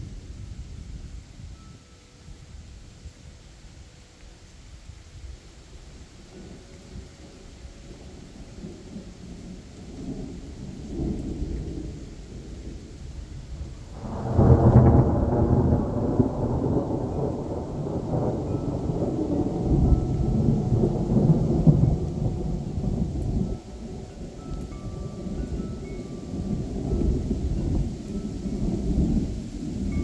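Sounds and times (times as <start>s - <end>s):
steady rain: 0.0s - 30.0s
thunder rumbling and cracking: 6.4s - 30.0s.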